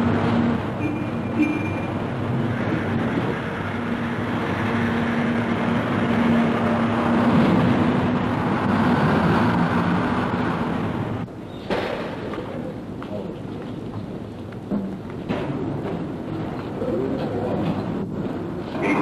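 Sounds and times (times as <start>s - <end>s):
bus diesel engine running: 0.0s - 11.4s.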